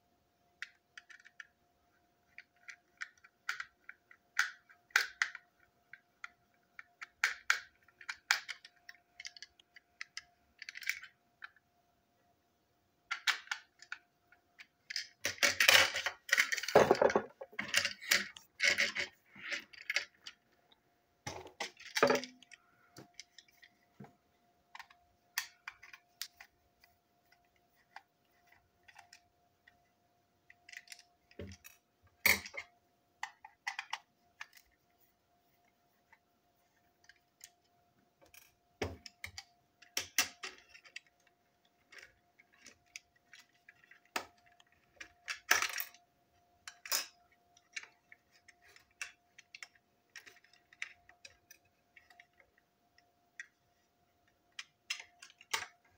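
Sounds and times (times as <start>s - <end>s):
plastic parts clicking and snapping: 0.6s - 1.6s, 2.2s - 11.6s, 13.1s - 20.5s, 21.2s - 23.8s, 24.7s - 29.8s, 30.4s - 34.8s, 37.0s - 53.6s, 54.2s - 55.9s
plastic parts tapping on table: 15.2s - 18.9s, 21.3s - 23.2s.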